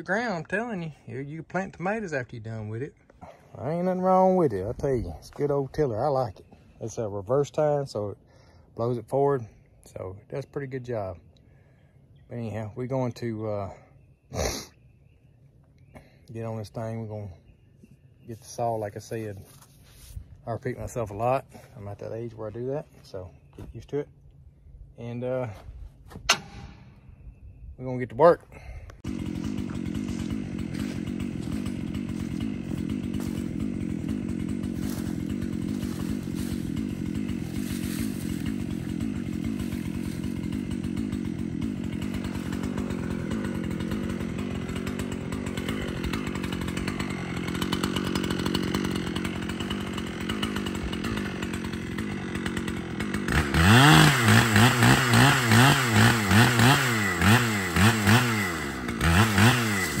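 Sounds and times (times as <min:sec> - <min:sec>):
engine revving: 0:29.0 - 1:00.0.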